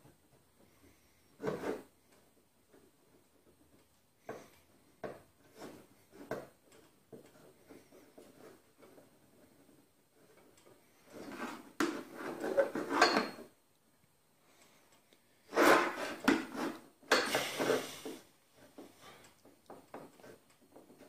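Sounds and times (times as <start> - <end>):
metal tools clattering and scraping: 12.4 - 13.5, 17.1 - 18.0.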